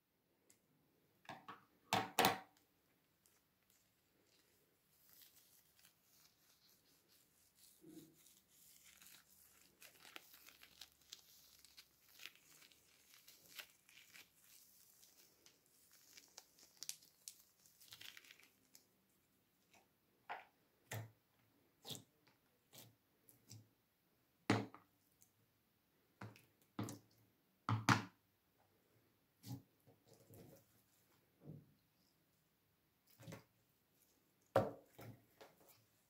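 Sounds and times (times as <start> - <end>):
slime crackling: 5.0 - 18.9.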